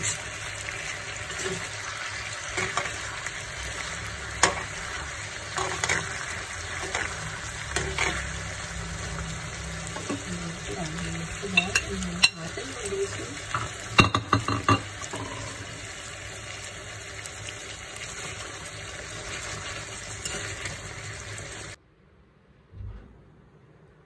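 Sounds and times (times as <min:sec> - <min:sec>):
food sizzling in a frying pan: 0:00.0 - 0:21.8.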